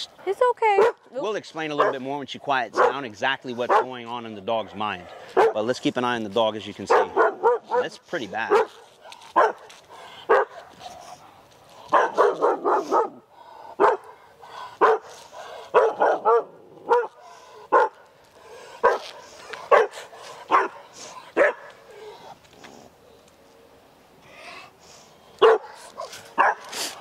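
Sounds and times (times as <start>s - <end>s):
dog barking: 0.8s - 1.0s, 1.8s - 2.1s, 2.7s - 3.0s, 3.6s - 4.0s, 4.6s - 5.6s, 6.9s - 8.8s, 9.4s - 9.7s, 10.3s - 10.7s, 11.9s - 13.2s, 13.8s - 14.2s, 14.8s - 18.0s, 18.8s - 19.1s, 19.7s - 21.7s, 25.4s - 26.7s.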